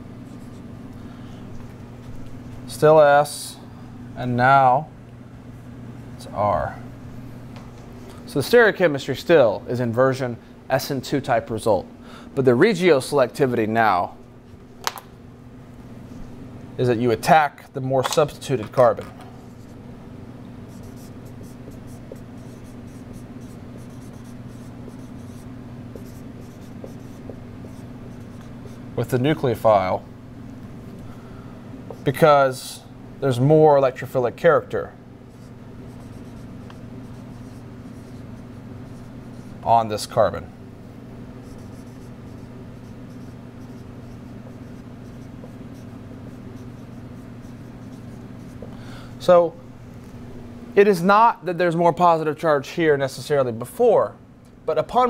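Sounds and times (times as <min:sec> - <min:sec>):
steady low hum: 0:00.0 - 0:55.0
marker writing on whiteboard: 0:20.7 - 0:28.8, 0:35.3 - 0:39.6, 0:41.4 - 0:48.7.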